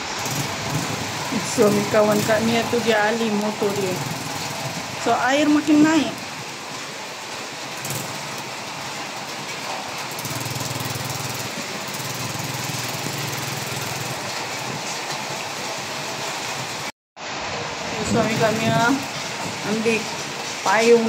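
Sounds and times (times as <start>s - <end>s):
motorcycle engine at low revs: 0.0s - 6.8s, 7.6s - 14.9s
heavy rain falling: 0.0s - 21.0s.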